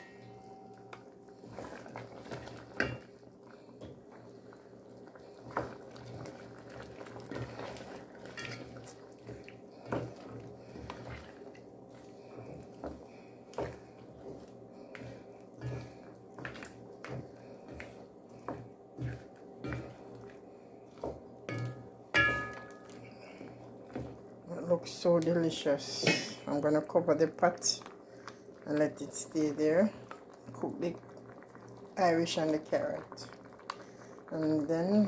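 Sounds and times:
stew sloshing: 1.4s - 25.8s
wooden spoon knocking metal pot: 21.0s - 23.0s.

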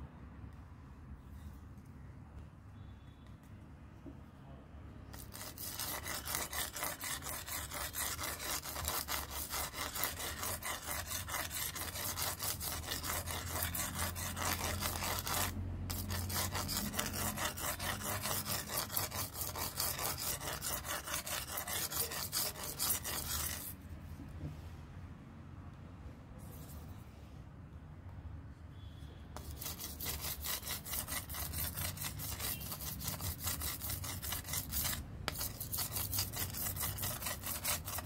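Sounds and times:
abrasive sheet rasping on knife: 5.1s - 23.8s, 29.4s - 38.0s.

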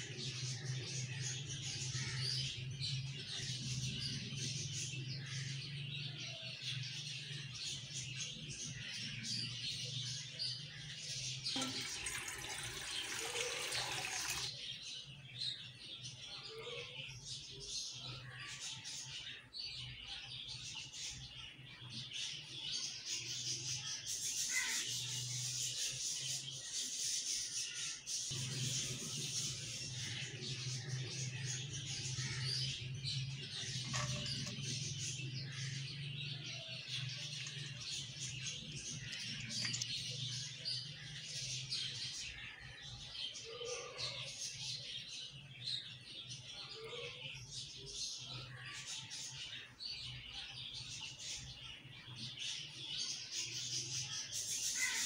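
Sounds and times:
water pouring into steel pot: 11.5s - 14.5s.

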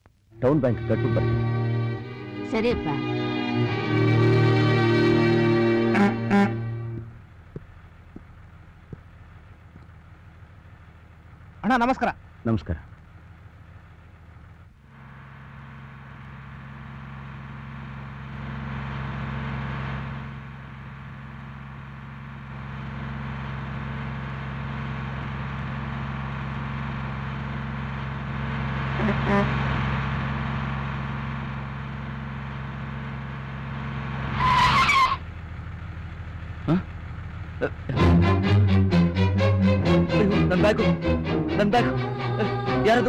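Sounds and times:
bus engine humming: 0.0s - 43.0s
road noise: 25.1s - 41.8s.

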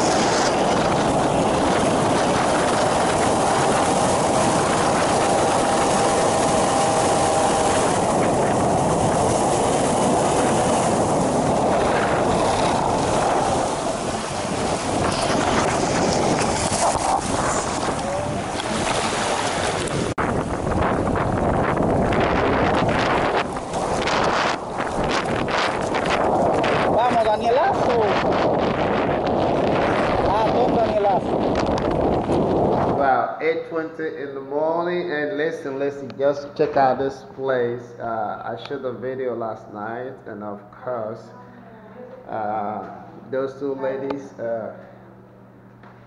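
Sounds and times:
aircraft engine and propeller: 0.0s - 27.6s
water rushing past hull: 0.0s - 33.0s
wind buffeting microphone: 0.0s - 33.2s.

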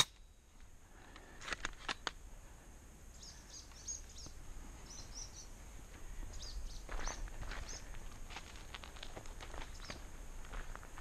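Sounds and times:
small birds chirping: 3.1s - 8.1s, 9.6s - 10.2s.

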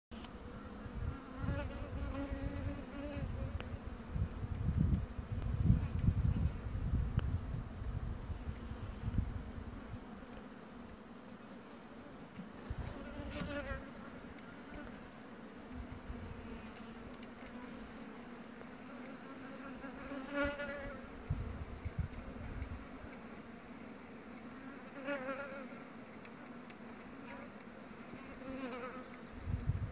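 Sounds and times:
bumblebee buzzing: 0.2s - 29.9s
faint ticks: 3.5s - 6.4s, 7.1s - 7.3s, 8.3s - 9.3s, 10.2s - 11.3s, 12.3s - 19.2s, 21.2s - 23.5s, 26.1s - 29.5s.

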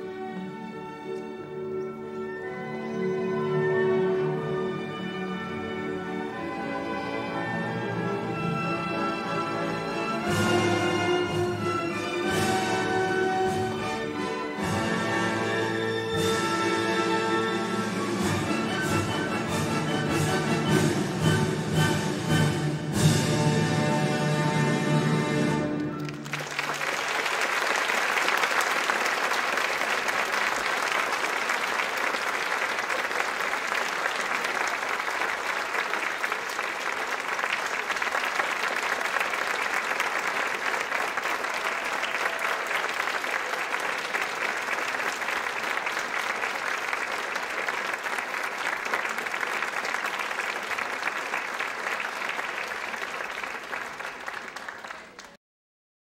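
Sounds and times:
audience applauding: 25.8s - 55.4s.

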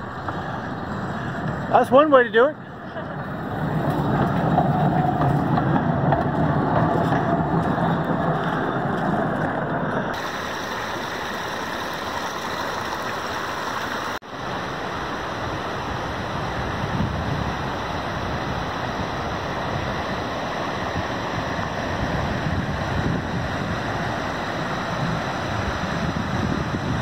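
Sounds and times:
stream rushing over rocks: 10.0s - 27.0s.

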